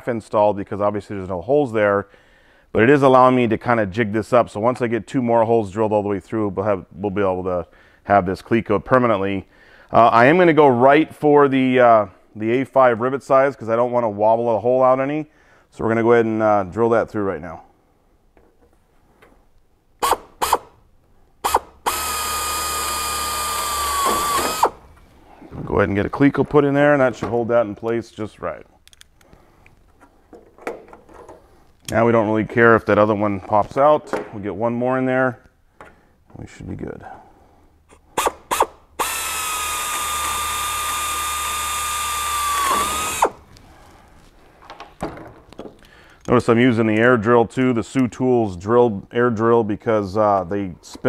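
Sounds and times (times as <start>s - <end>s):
pneumatic air drill whine: 20.0s - 20.7s, 21.4s - 24.8s, 38.1s - 43.4s.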